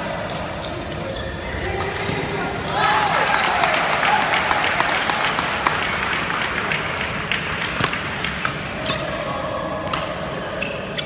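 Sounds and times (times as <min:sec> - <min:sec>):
spectators clapping: 0:02.8 - 0:08.4.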